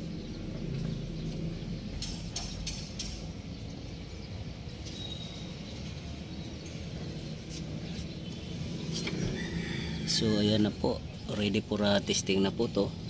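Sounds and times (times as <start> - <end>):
steady low rumble: 0.0 - 4.8
faint high chirp: 4.8 - 6.9.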